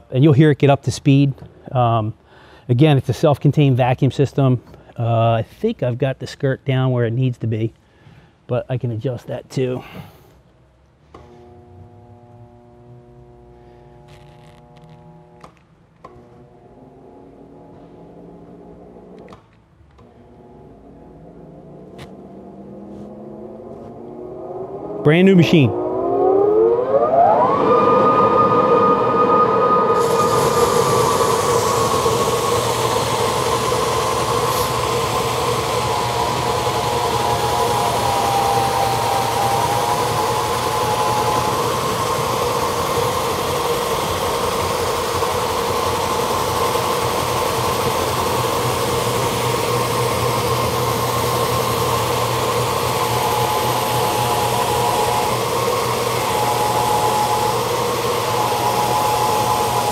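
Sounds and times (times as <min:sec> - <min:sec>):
floor sander motor running: 0:20.2 - 0:59.9
steady hiss: 0:30.0 - 0:59.9.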